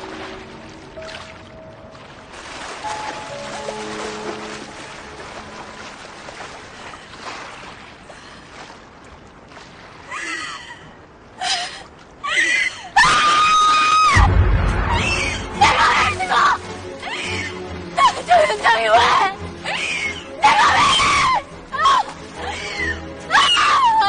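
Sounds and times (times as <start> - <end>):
background music: 0.0 - 6.4, 14.2 - 24.0
sea waves rushing: 0.0 - 11.3, 14.1 - 24.0
woman screaming: 13.0 - 14.3, 19.7 - 24.0.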